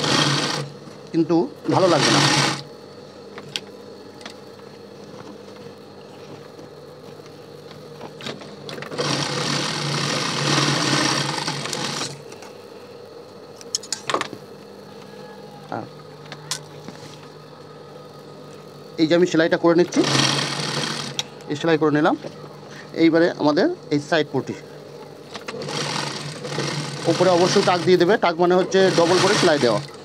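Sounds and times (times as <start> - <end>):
sewing machine stitching: 0.0 - 0.7, 1.7 - 2.6, 8.8 - 12.2, 19.9 - 21.2, 25.4 - 28.0, 28.7 - 30.0.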